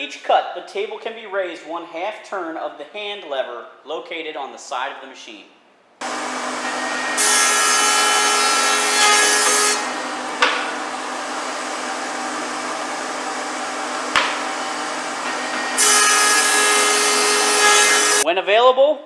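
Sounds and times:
planer cutting a board: 0:06.0 - 0:18.2
thickness planer humming: 0:06.0 - 0:18.2
sharp knocks: 0:10.4 - 0:10.8, 0:14.1 - 0:14.6.

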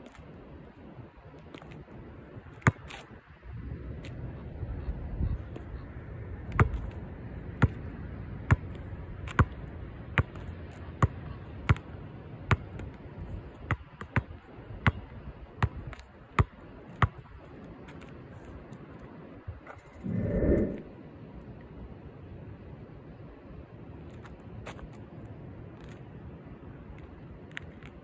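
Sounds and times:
basketball bouncing on hard ground: 0:02.5 - 0:03.0, 0:06.5 - 0:07.0, 0:07.6 - 0:07.9, 0:08.5 - 0:13.0, 0:13.6 - 0:18.1.

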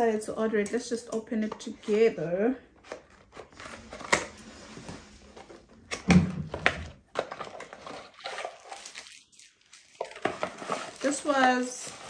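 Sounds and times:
packaging rustling: 0:06.5 - 0:12.0.

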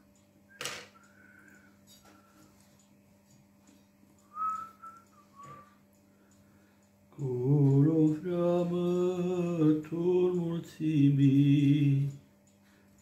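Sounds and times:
faint steady hum: 0:00.0 - 0:13.0
man singing unaccompanied: 0:07.2 - 0:12.2.

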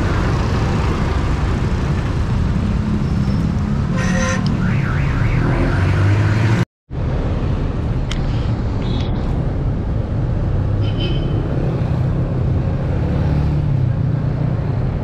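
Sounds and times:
passing motor vehicles rumble: 0:00.0 - 0:15.0
road traffic noise: 0:00.0 - 0:15.0.

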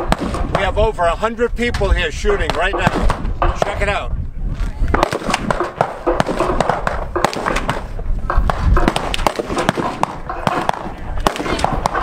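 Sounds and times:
gunshots: 0:00.0 - 0:00.8, 0:02.4 - 0:04.0, 0:04.9 - 0:12.0.

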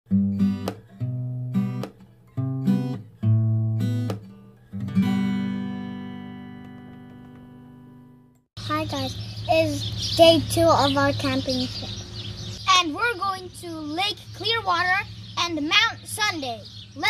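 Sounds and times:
acoustic guitar strummed chords: 0:00.1 - 0:08.3.

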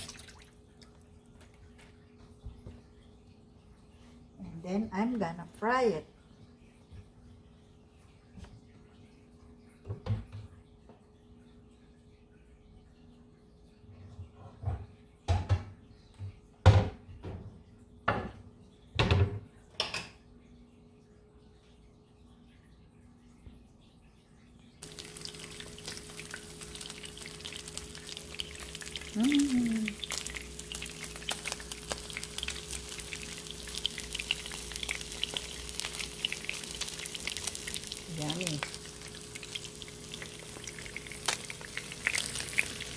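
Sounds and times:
fish frying with crackles and pops: 0:00.0 - 0:03.0, 0:24.8 - 0:42.9
faint steady hum: 0:00.0 - 0:42.9
cupboards and cookware knocking: 0:14.6 - 0:15.8, 0:16.6 - 0:17.5, 0:19.0 - 0:20.0.

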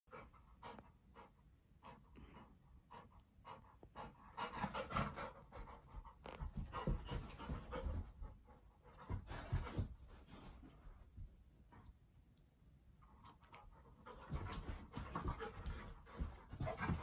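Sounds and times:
dog panting: 0:00.1 - 0:10.7, 0:13.5 - 0:17.0
low thumps of dog moving: 0:04.6 - 0:11.2, 0:14.1 - 0:17.0.

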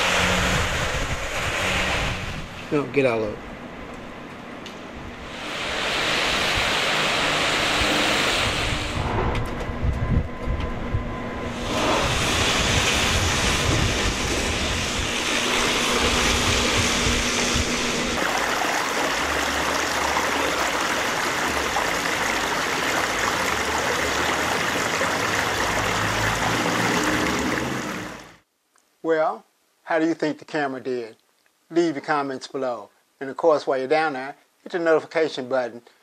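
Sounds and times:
small waterfall running: 0:05.3 - 0:08.6, 0:11.6 - 0:28.4
low rumble: 0:08.5 - 0:18.2
rain: 0:18.1 - 0:28.4.

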